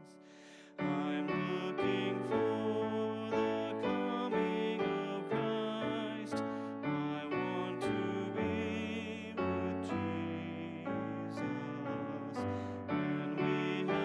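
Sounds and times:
hymn music led by piano: 0.0 - 14.0.

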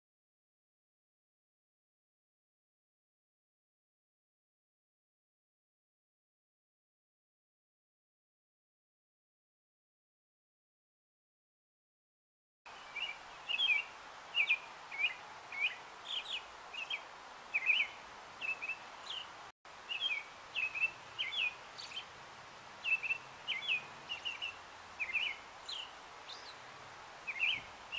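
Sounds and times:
faint outdoor hiss: 12.7 - 27.9
robin singing: 12.7 - 27.9.

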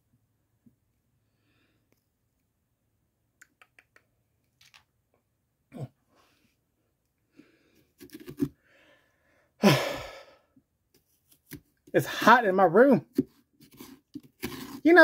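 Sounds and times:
short grunts: 5.7 - 6.0
man sighing heavily: 9.6 - 10.5.

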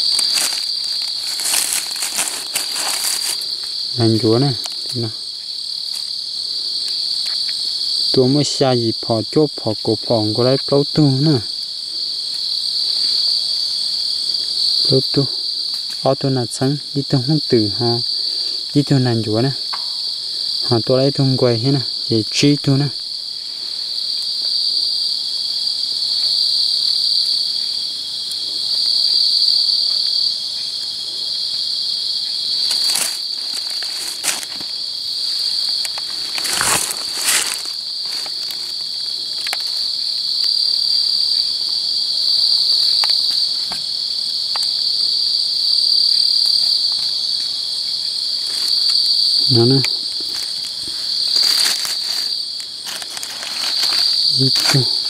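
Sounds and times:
rustles in dry leaves: 0.0 - 5.1, 32.3 - 40.0, 49.6 - 55.0
insect chorus trilling: 0.0 - 55.0.

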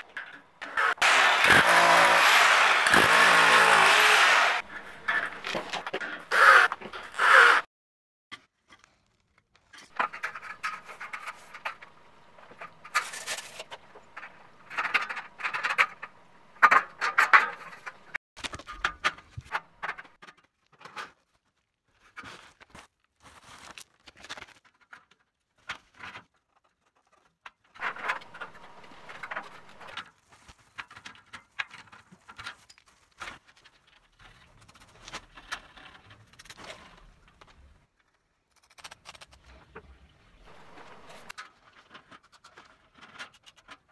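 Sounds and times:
scraping and rustling on metal: 9.8 - 18.2, 25.9 - 37.2.

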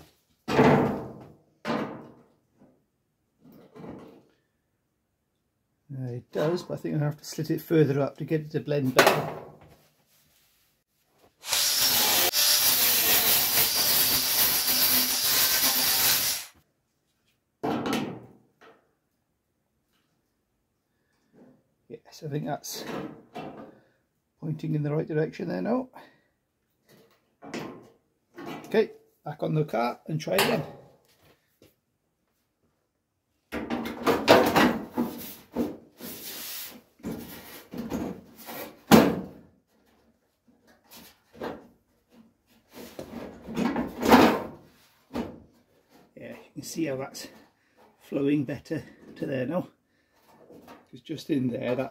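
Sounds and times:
angle grinder cutting steel: 11.4 - 16.5.

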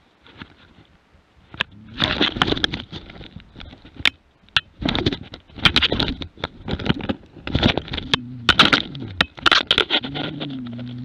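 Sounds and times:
wolf growling: 7.9 - 11.0.

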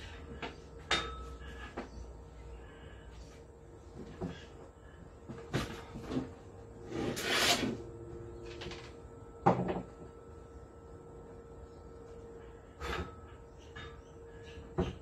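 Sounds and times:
wooden board scraping: 6.9 - 7.8.

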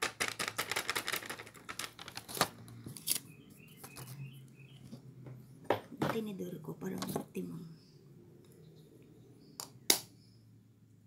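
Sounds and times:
plastic bag crinkling: 0.0 - 3.2.

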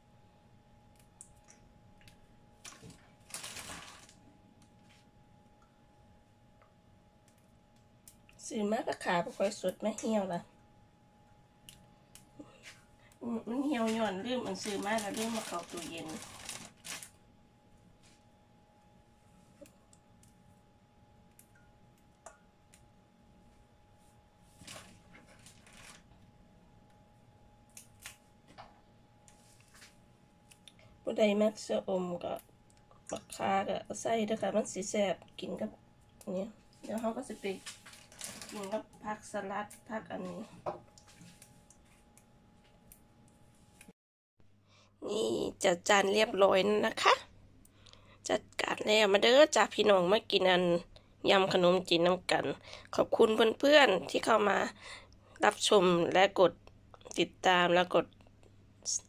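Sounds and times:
faint steady hum: 0.0 - 59.0
herbs rustling: 2.6 - 4.2, 13.4 - 17.2, 36.7 - 38.9.

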